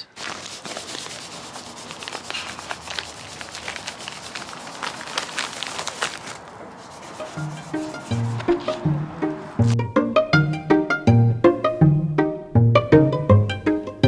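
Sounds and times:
tissue paper rustling and crinkling: 0.1 - 8.8
plucked music: 7.4 - 14.0.

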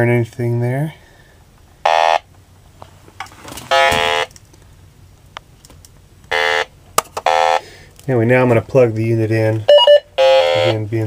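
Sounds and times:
short buzzing alarm tones: 1.8 - 2.3, 3.7 - 4.3, 6.3 - 7.8, 9.7 - 10.9.

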